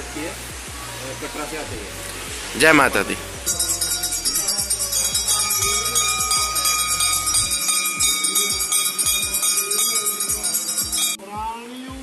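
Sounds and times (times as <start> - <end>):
brass bell clanging: 2.7 - 11.2.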